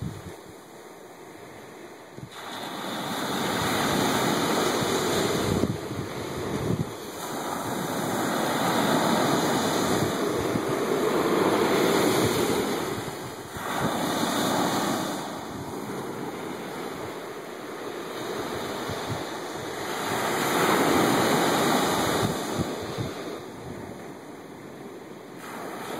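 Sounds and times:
ocean waves breaking on beach: 0.0s - 25.9s.

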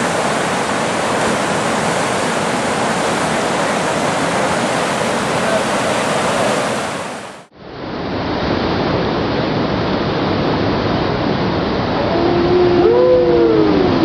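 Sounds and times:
whitewater rapids rushing: 0.0s - 7.5s.

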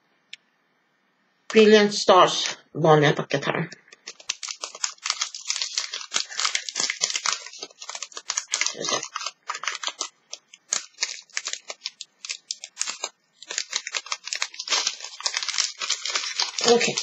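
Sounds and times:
foil wrapper crinkling: 3.9s - 17.0s.

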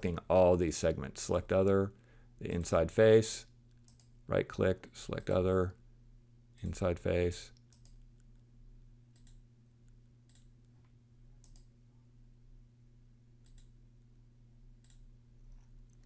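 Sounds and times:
low steady hum: 0.0s - 16.0s
computer mouse clicks: 3.7s - 4.1s, 7.6s - 8.3s, 9.1s - 9.4s, 10.2s - 10.5s, 11.4s - 11.7s, 13.4s - 13.8s, 14.8s - 16.0s.

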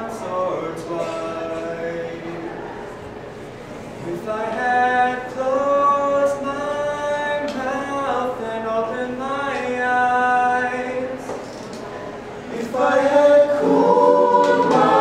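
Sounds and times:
choir singing a cappella: 12.4s - 15.0s.

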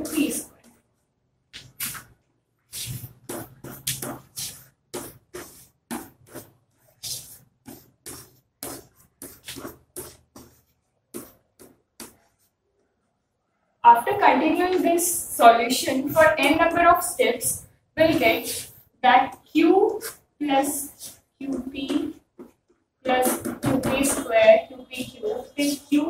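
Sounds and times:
chalk scratching on chalkboard: 2.7s - 12.6s, 18.0s - 18.9s, 19.9s - 26.0s.

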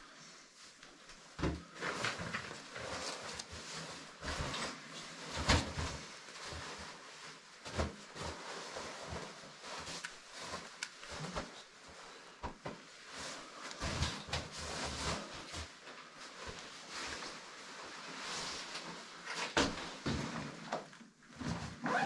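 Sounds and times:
rustling of handled gear: 0.6s - 20.7s.

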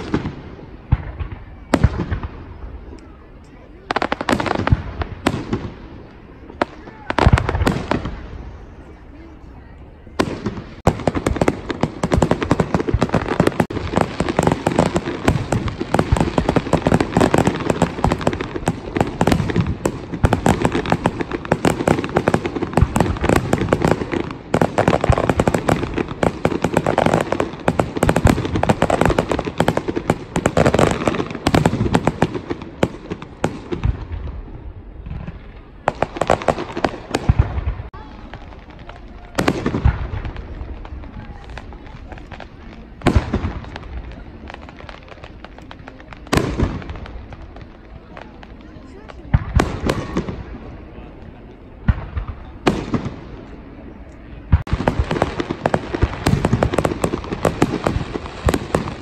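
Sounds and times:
fireworks bangs and crackling: 0.0s - 59.0s.

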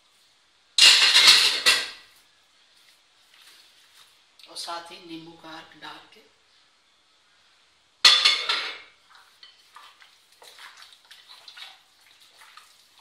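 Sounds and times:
wet squelches of marinating chicken: 9.0s - 13.0s.

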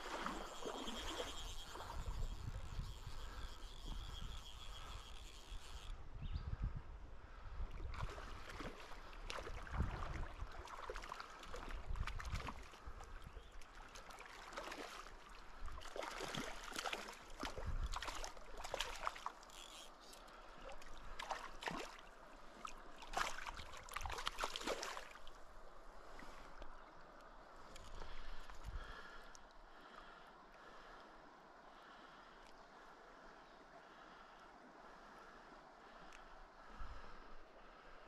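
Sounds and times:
river current flowing: 0.0s - 6.1s, 7.9s - 38.0s
water splashing around legs: 15.8s - 19.5s, 20.6s - 25.4s.

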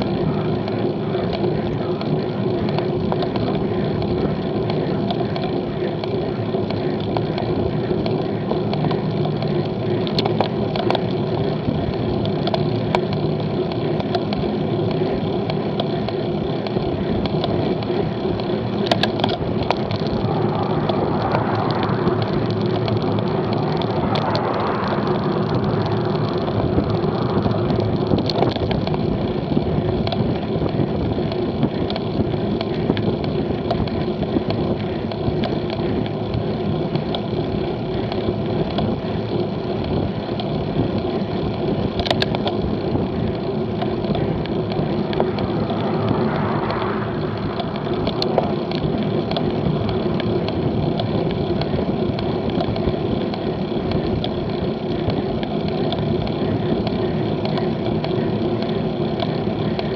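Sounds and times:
bicycle tyre and drivetrain noise: 0.0s - 59.9s
wind on microphone: 18.9s - 34.9s, 42.0s - 50.9s
rushing noise: 19.7s - 28.4s, 44.6s - 49.4s.

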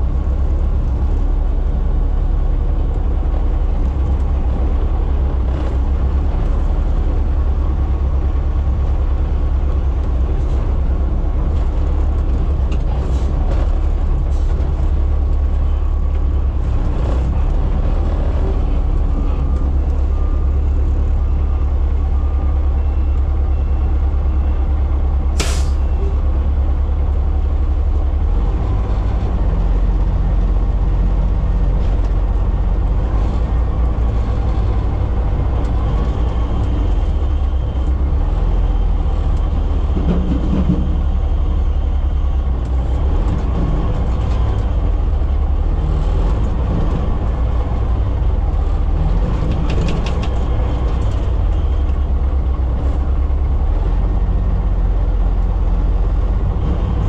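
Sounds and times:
diesel truck engine running: 0.0s - 57.0s
air brake hiss: 25.4s - 25.8s.

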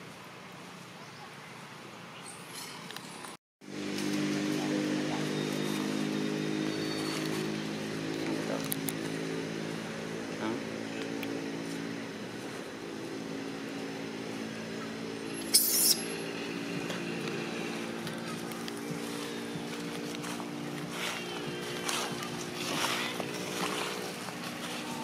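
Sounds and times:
car engine idling: 16.2s - 25.0s.

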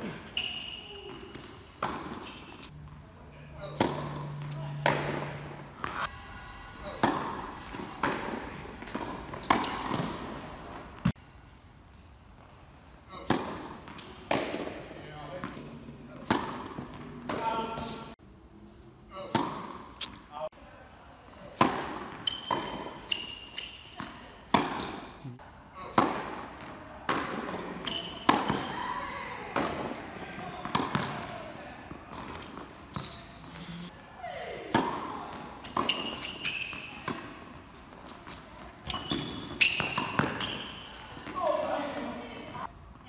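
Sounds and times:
sneaker squeaks: 0.0s - 2.7s, 3.5s - 11.1s, 21.6s - 25.9s, 27.1s - 42.7s
tennis ball struck with racquets: 1.1s - 2.7s, 3.6s - 6.1s, 6.8s - 11.2s, 13.1s - 18.0s, 19.1s - 20.2s, 21.6s - 25.2s, 25.8s - 28.8s, 29.5s - 33.7s, 34.6s - 41.5s
ball bouncing on hard court: 7.0s - 11.1s, 26.0s - 31.4s, 34.7s - 41.5s.

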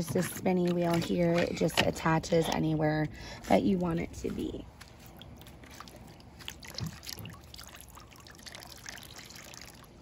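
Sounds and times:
water trickling and splashing: 4.2s - 10.0s
small water drips: 4.8s - 10.0s.

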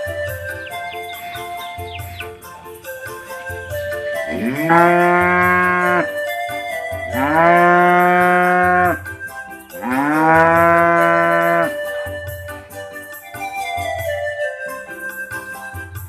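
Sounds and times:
background music with steady beat: 0.0s - 16.0s
cow mooing: 4.3s - 6.1s, 7.1s - 9.0s, 9.8s - 11.7s.

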